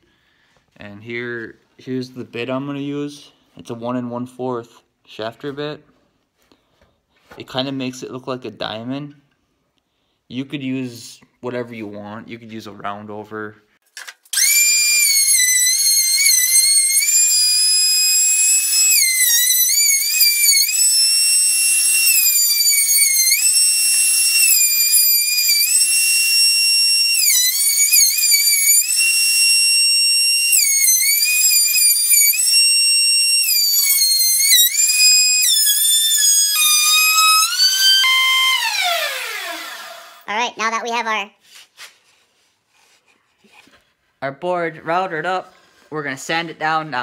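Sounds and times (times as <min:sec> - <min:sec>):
router high-pitched whine: 0:14.4 - 0:40.3.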